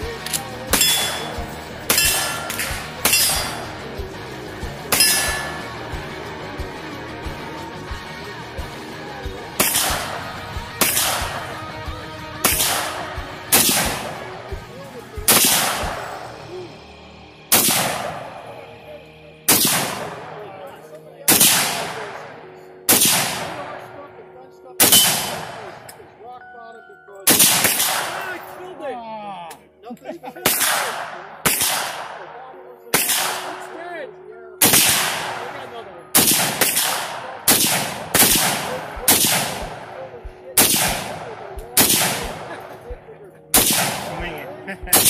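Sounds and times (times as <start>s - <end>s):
rifle shots echoing: 0.0s - 4.1s, 4.8s - 5.9s, 9.6s - 16.5s, 17.5s - 18.7s, 19.5s - 20.7s, 21.3s - 26.1s, 27.2s - 28.8s, 30.4s - 34.0s, 34.6s - 45.0s.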